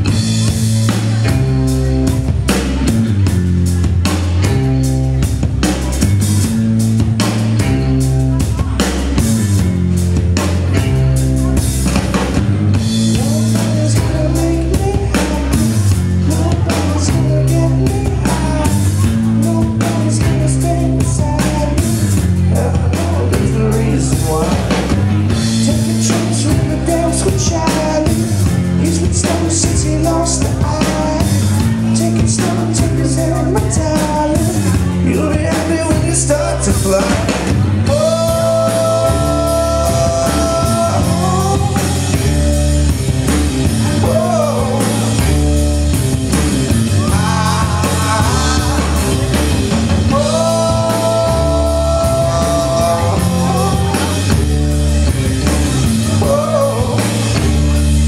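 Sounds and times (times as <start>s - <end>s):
bass guitar: 0.0s - 58.0s
drum kit beat: 0.0s - 58.0s
electric guitars: 0.0s - 58.0s
person singing: 12.9s - 43.0s, 43.6s - 45.6s, 46.7s - 58.0s.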